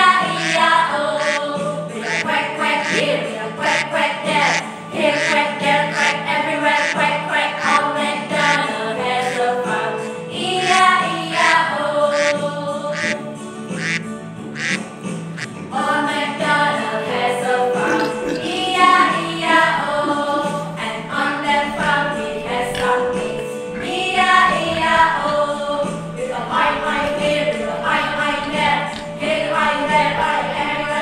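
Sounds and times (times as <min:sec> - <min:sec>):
women singing: 0:00.0 - 0:13.9, 0:15.7 - 0:31.0
singers imitating duck quacking: 0:00.2 - 0:09.6, 0:10.4 - 0:14.8, 0:17.8 - 0:19.0
keyboard accompaniment: 0:00.3 - 0:15.7.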